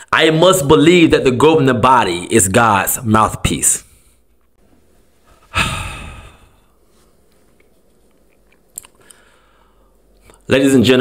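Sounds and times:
man sighing heavily: 0:05.3 - 0:06.7
mouth clicks: 0:08.3 - 0:09.2.

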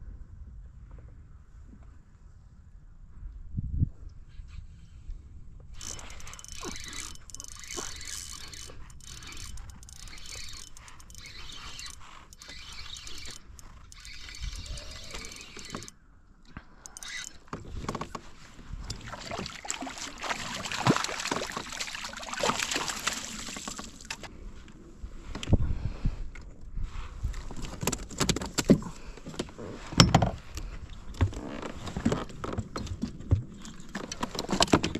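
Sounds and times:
water splashing beside a kayak: 0:17.8 - 0:24.3.

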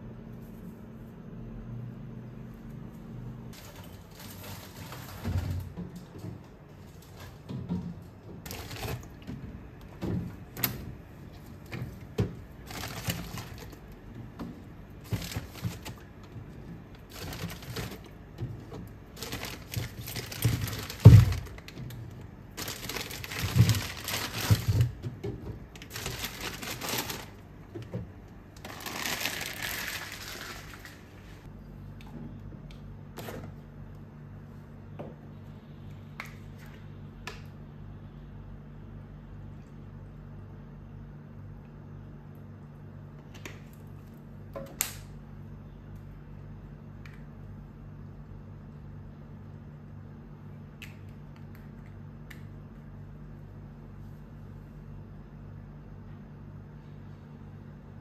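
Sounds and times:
plastic bottles crinkling: 0:03.6 - 0:06.2, 0:08.4 - 0:09.4, 0:11.3 - 0:14.1, 0:15.0 - 0:27.5, 0:28.5 - 0:31.2.

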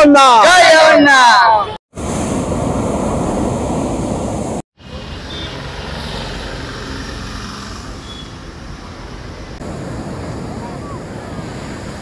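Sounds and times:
outdoor background noise: 0:00.0 - 0:12.0
ocean surf breaking: 0:01.9 - 0:04.6, 0:09.5 - 0:12.0.

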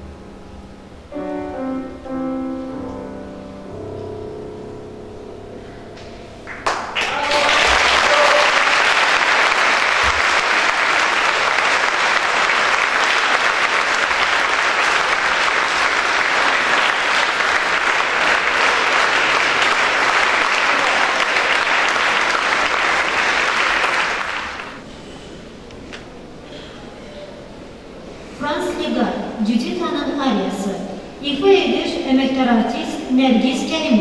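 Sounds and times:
audience applauding: 0:06.5 - 0:24.8.

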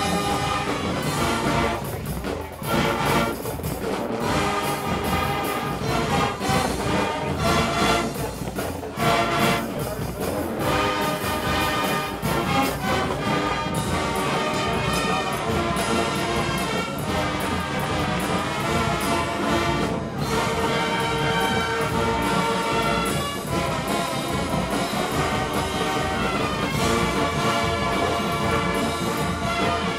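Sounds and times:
brass ensemble playing: 0:00.0 - 0:29.9
marching drums and percussion: 0:00.0 - 0:29.9.

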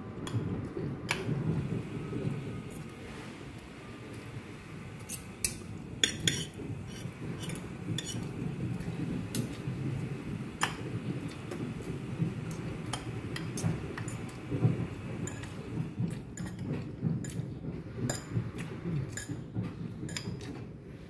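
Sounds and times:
cutlery clinking on a plate: 0:05.1 - 0:08.3.

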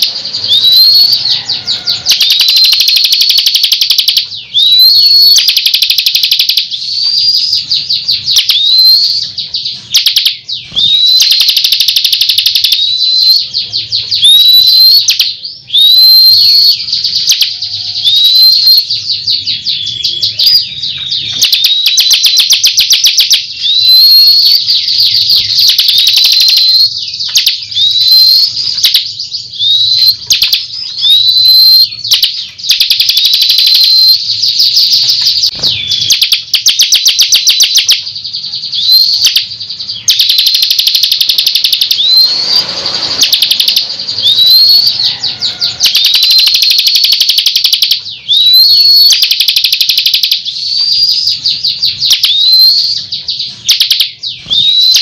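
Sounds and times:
bird singing rattling trills: 0:00.0 - 0:55.0
bird upward-hooking whistles: 0:02.2 - 0:07.6, 0:08.3 - 0:09.3, 0:14.2 - 0:18.9, 0:40.0 - 0:55.0.

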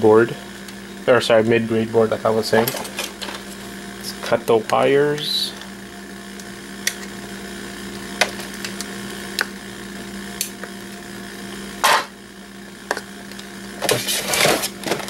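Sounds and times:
steady low hum: 0:00.0 - 0:15.0
side cutters snipping wires: 0:06.4 - 0:07.1
rustling scrape: 0:13.9 - 0:15.0.

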